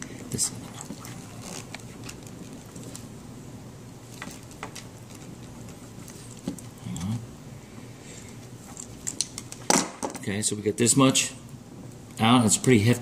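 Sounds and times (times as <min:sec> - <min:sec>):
wire strippers clicking and scraping: 0:00.3 - 0:03.1, 0:08.6 - 0:09.8.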